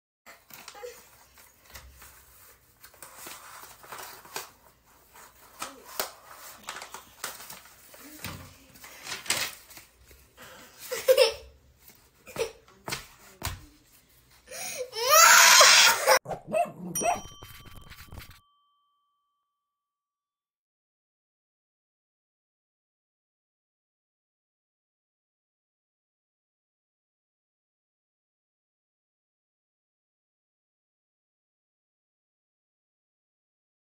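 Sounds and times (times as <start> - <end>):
paper and cardboard rustling: 0.3 - 14.4, 17.2 - 18.4
ringing chime: 17.0 - 19.8.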